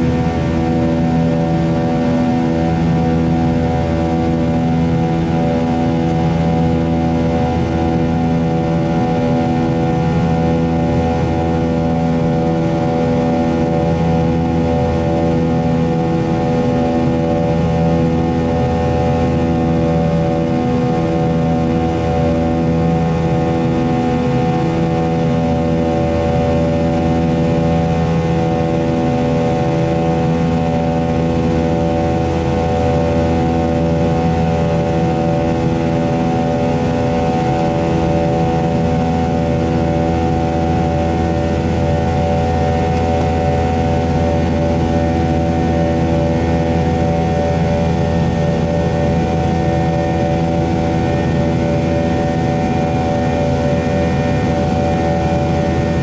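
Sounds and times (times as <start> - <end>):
airliner cabin engine drone: 0.0 - 56.0.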